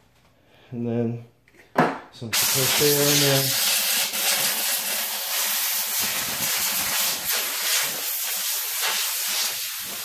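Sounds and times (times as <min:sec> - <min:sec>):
compressed air hissing: 0:02.3 - 0:10.0.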